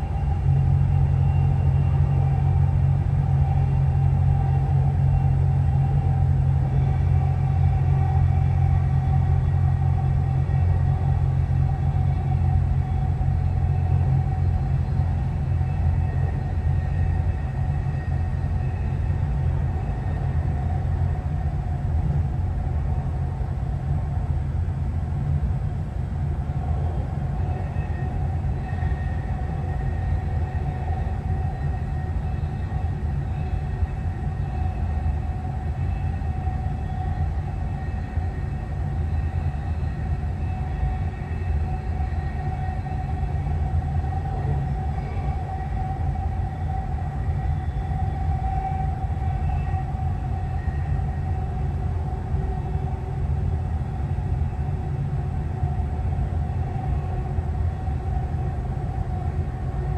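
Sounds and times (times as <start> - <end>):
faint train whine: 0.0 - 59.9
train low rumble: 0.0 - 59.9.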